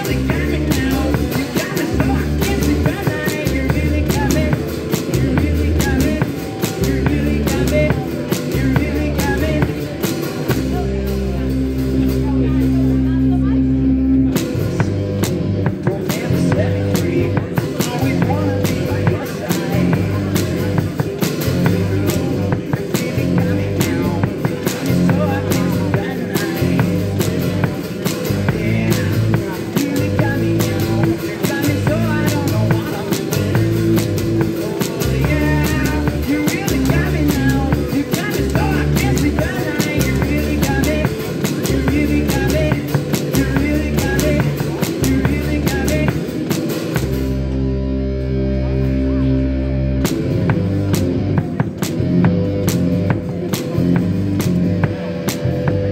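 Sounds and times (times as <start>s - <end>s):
drum and cymbal hits: 0.0s - 13.4s, 14.2s - 47.6s, 50.0s - 55.9s
bass line: 0.0s - 55.9s
live band playing: 0.0s - 55.9s.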